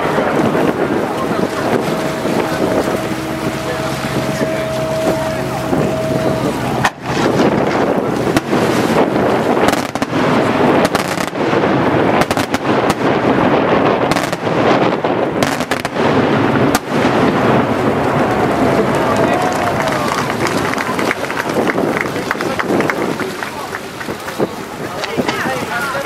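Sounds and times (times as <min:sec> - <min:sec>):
wind on microphone: 0:00.0 - 0:26.0
faint steady tone: 0:01.6 - 0:07.1
fireworks bangs and crackling: 0:06.8 - 0:18.3.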